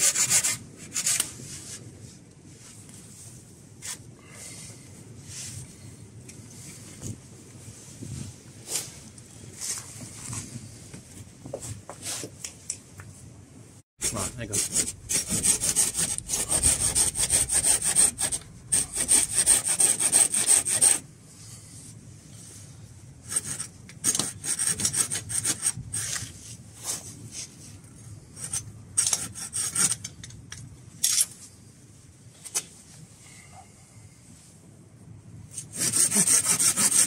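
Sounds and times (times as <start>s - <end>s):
hand saw cutting wood: 0.0s - 1.3s, 14.0s - 21.0s, 23.3s - 26.2s, 28.4s - 30.0s, 35.6s - 37.0s.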